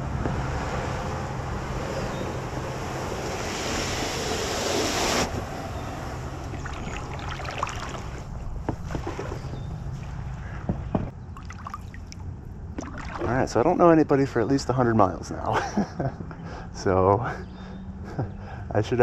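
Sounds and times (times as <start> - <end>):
kayak and paddle knocking: 8.6 - 11.6.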